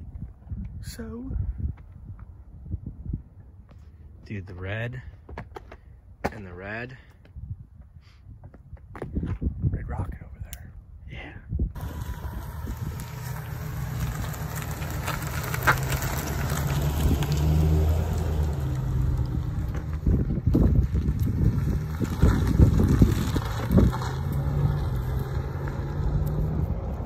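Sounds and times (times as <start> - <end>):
pickup truck driving past: 11.8 - 27.0.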